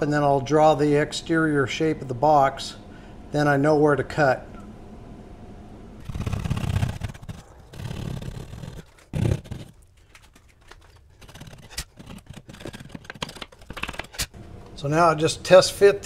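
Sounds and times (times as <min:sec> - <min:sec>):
saw rasping through drywall: 0:06.0 - 0:14.3.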